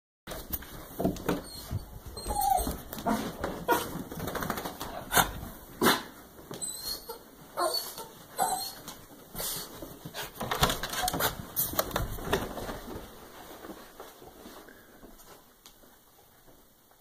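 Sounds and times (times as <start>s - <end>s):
small dog whining and yipping: 1.4s - 2.8s, 6.6s - 9.6s.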